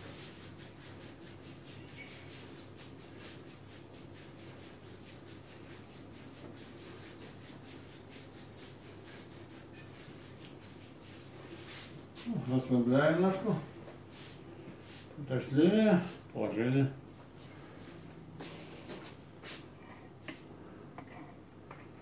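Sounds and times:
hands rubbing skin: 0:00.0 - 0:12.4, 0:13.3 - 0:15.1, 0:18.4 - 0:20.4.

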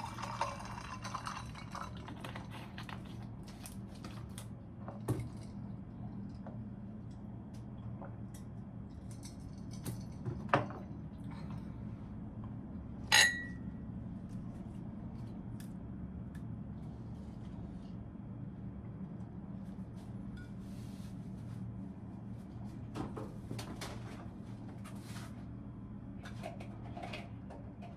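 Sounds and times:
steady low hum: 0:00.0 - 0:27.9
sharp glass clink: 0:13.1 - 0:13.6.

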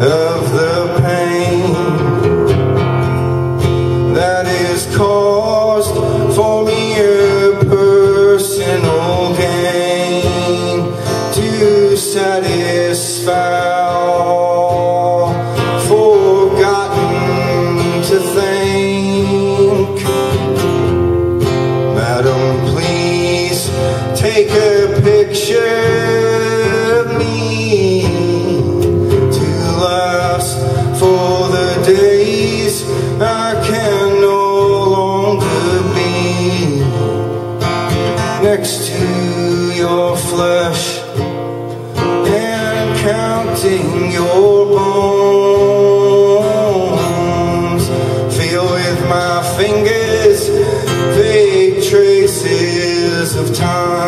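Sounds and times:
man singing: 0:00.0 - 0:02.6, 0:03.6 - 0:54.0
acoustic guitar playing: 0:00.0 - 0:54.0.

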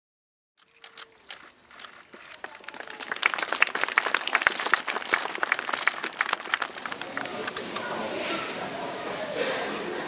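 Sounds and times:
crowd applauding: 0:01.2 - 0:07.8.

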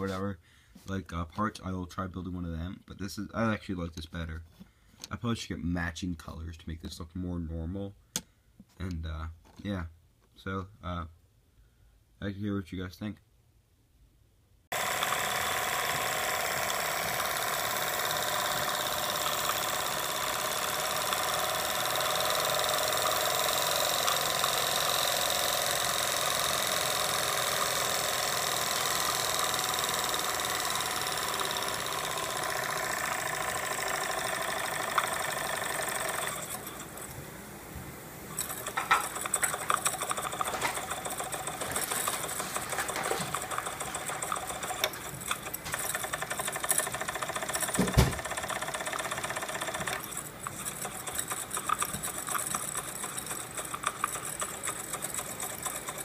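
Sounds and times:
toy steam engine running: 0:14.7 - 0:37.2, 0:38.3 - 0:56.0
clicks and knocks: 0:38.4 - 0:41.0.

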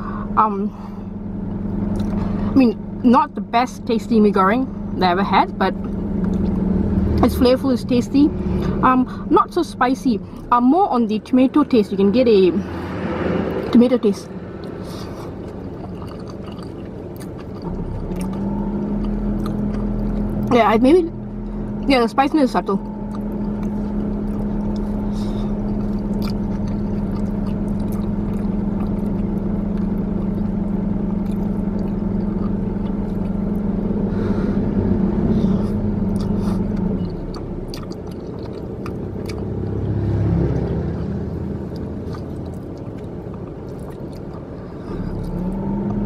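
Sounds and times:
droning tone: 0:12.0 - 0:46.0
car cabin hum: 0:13.4 - 0:46.0.

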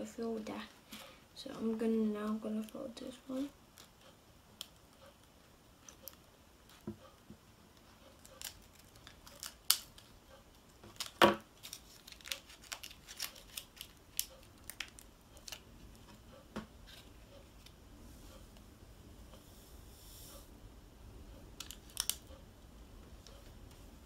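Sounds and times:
plastic packet crinkling: 0:10.9 - 0:15.6, 0:21.6 - 0:22.2.

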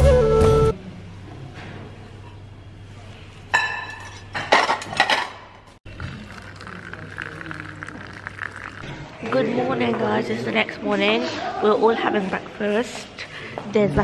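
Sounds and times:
dishes and cutlery clattering: 0:03.5 - 0:05.6.

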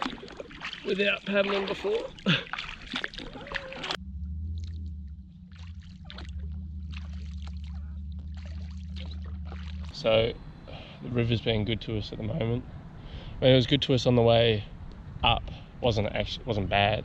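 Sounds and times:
paddle splashing water: 0:00.0 - 0:04.0, 0:05.5 - 0:10.3
water trickling and lapping: 0:00.0 - 0:04.0, 0:05.5 - 0:11.7
low rumble: 0:02.1 - 0:17.0.

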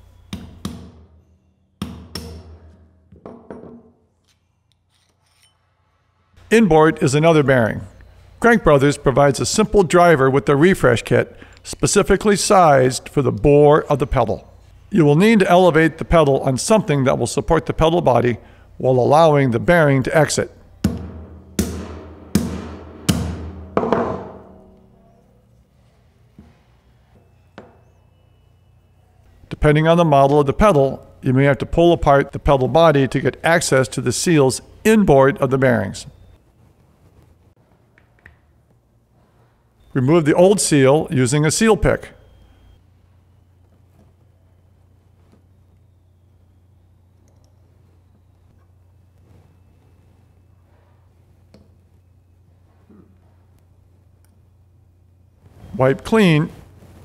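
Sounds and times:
hammer tapping steel punch: 0:00.3 - 0:01.2, 0:01.8 - 0:03.9
hammer striking metal: 0:00.3 - 0:03.9, 0:20.8 - 0:25.1.

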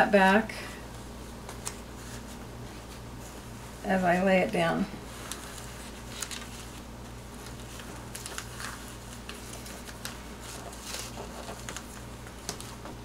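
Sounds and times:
cap and sticker rustling: 0:07.4 - 0:13.0.

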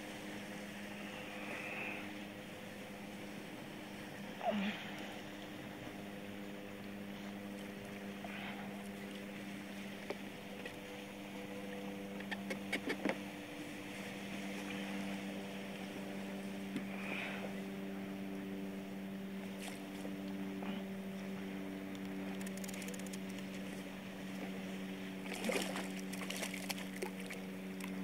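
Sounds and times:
faint water noise: 0:00.0 - 0:28.0
low engine-like hum: 0:00.0 - 0:28.0
fishing gear clicks and knocks: 0:21.9 - 0:23.7.

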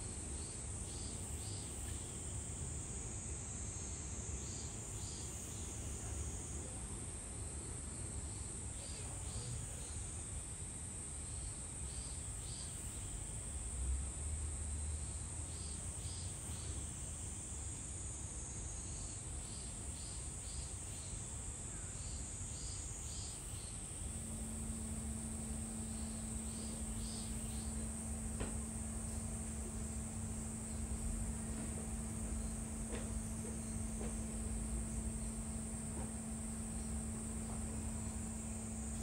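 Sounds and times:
short insect chirps: 0:19.0 - 0:39.0
high insect buzzing: 0:22.6 - 0:39.0
low hum: 0:24.0 - 0:39.0.

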